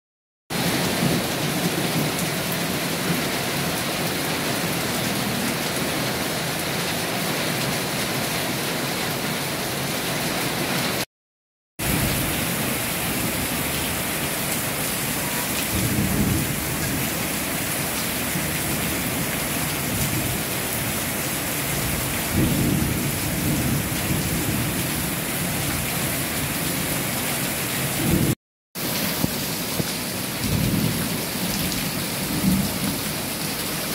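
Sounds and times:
heavy rain pouring: 0.5 - 11.1, 11.8 - 33.9
low thunder rolls: 15.6 - 17.2.

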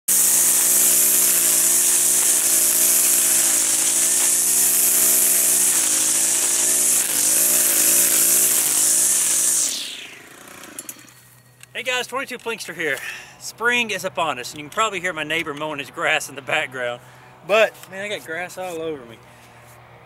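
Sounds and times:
string trimmer cutting grass: 0.1 - 11.6.

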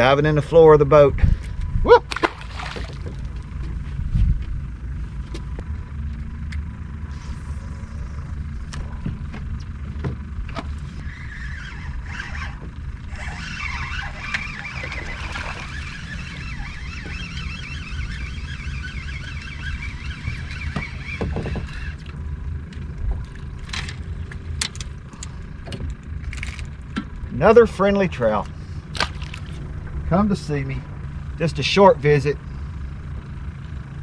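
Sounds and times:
wind rumbling on microphone: 1.0 - 5.7
water against boat hull: 2.1 - 3.8, 12.1 - 22.2, 28.9 - 29.7.

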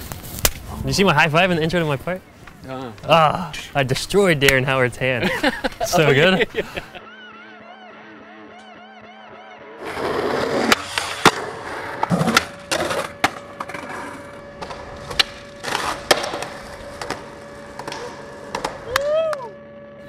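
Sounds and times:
skateboard wheels rolling on concrete: 0.0 - 6.5, 9.8 - 19.6
skateboard clacking on ground: 10.6 - 19.1.

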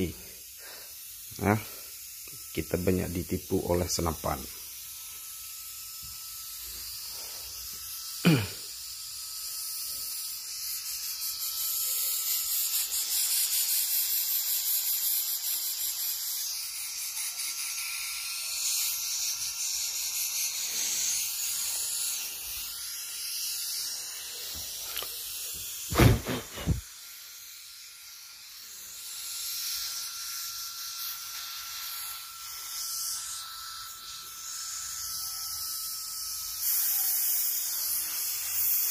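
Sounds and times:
compressed air hissing: 0.0 - 2.0, 20.4 - 22.7, 25.9 - 26.8.

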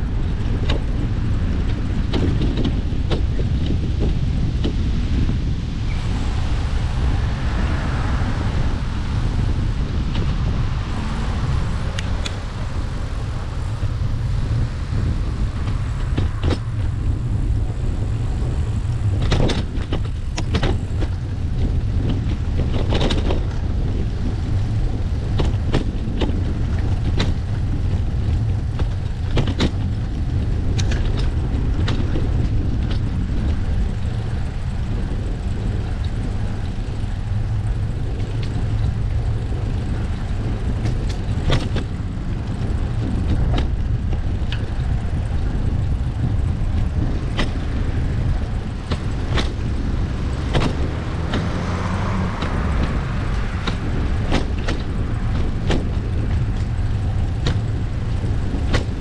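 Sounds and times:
wind rumbling on microphone: 0.0 - 59.0
scattered clicks and knocks: 0.4 - 4.8, 15.0 - 16.9, 18.4 - 59.0.

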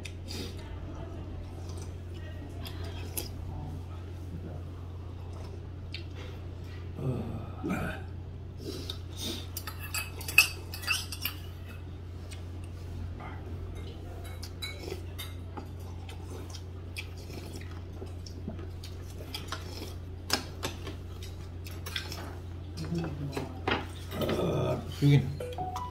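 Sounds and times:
steady low hum: 0.0 - 25.9
cutlery clinking against dishes: 9.6 - 11.5, 13.7 - 15.8.

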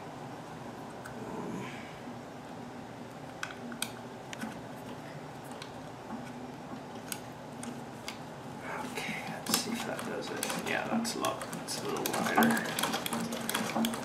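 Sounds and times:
steady low hiss: 0.0 - 13.4
clicks and taps on sewing machine: 9.3 - 14.0.

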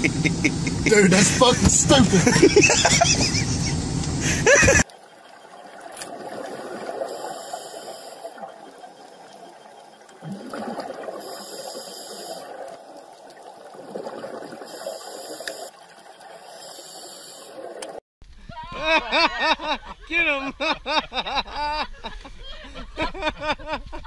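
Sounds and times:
bubbling exhale: 6.3 - 8.6, 10.2 - 12.7
hissing inhale through regulator: 7.0 - 8.4, 11.1 - 12.6, 14.6 - 15.7, 16.4 - 17.7.

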